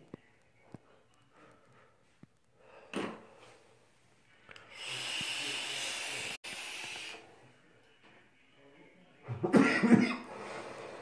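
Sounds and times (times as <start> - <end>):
breath hissing through a vape: 4.5 - 7.3.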